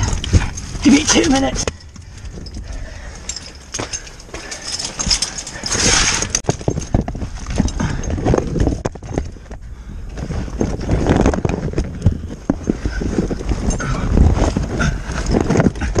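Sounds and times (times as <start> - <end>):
loose stones clattering: 0.0 - 9.6
body and gear scraping rock: 0.0 - 16.0.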